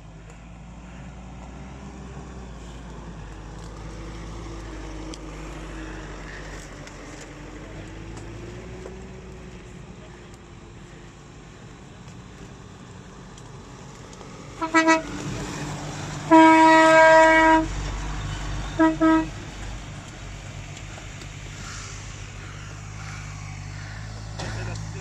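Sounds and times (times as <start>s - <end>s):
engine running: 0.0s - 25.0s
vehicle horn honking: 14.6s - 15.2s, 16.3s - 17.7s, 18.7s - 19.4s.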